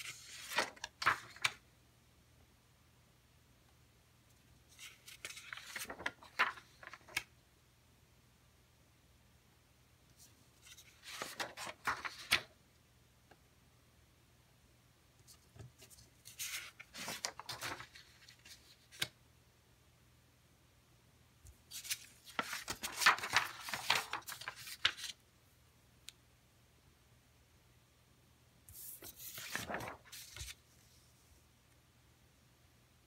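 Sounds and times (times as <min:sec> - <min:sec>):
crisp paper crackle: 0:00.0 - 0:01.6, 0:04.7 - 0:07.3, 0:10.6 - 0:12.5, 0:15.8 - 0:19.1, 0:21.7 - 0:25.2, 0:28.7 - 0:30.6
paper rustling and sliding: 0:00.0 - 0:01.6, 0:04.7 - 0:07.3, 0:10.2 - 0:12.5, 0:15.4 - 0:19.2, 0:21.6 - 0:25.2, 0:28.7 - 0:31.1.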